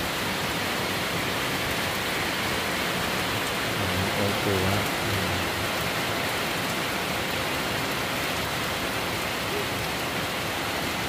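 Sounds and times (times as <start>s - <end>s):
heavy rain on wet paving: 0.0s - 11.0s.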